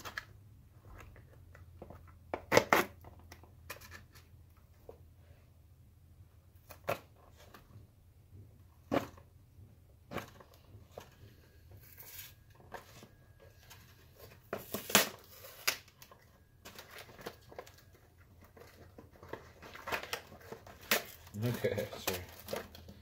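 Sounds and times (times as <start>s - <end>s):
packaging crinkling and rustling: 10.1s - 23.0s.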